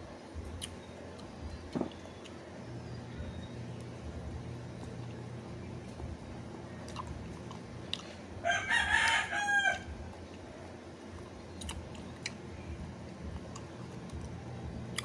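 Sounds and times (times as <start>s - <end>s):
rooster crowing: 8.4s - 10.1s.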